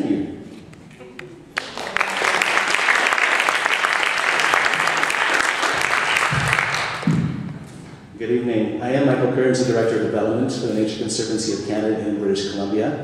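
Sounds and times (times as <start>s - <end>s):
audience applauding: 1.2s - 7.1s.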